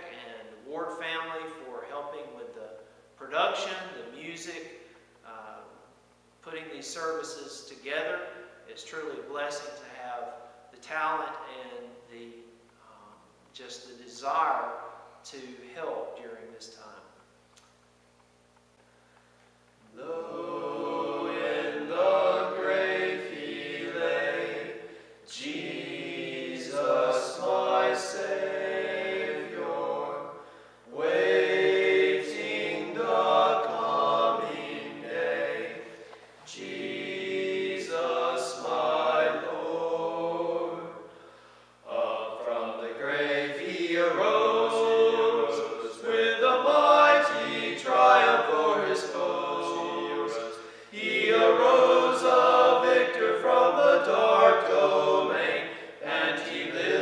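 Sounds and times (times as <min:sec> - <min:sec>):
group of voices singing unaccompanied: 0:19.9 - 0:41.2, 0:41.9 - 0:57.0.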